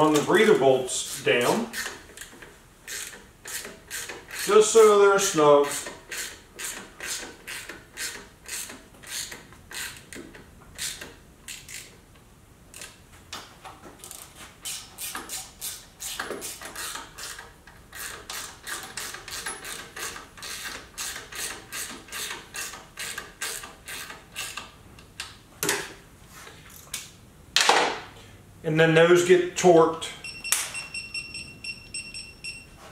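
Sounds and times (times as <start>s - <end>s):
hand ratchet clicking: 1.1s - 4.8s, 5.6s - 12.0s, 14.0s - 25.3s.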